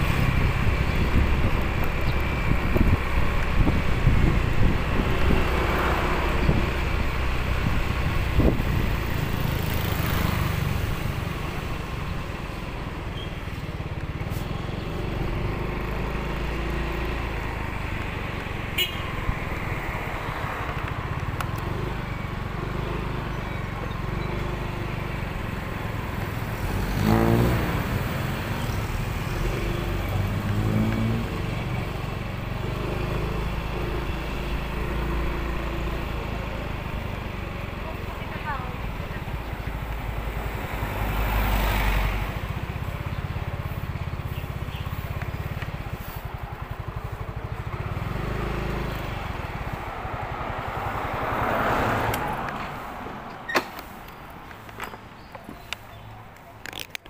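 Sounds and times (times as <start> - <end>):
road and wind rumble: 0.0 - 57.0
engine revving higher: 26.6 - 28.3
motorcycle engine running: 42.2 - 50.9.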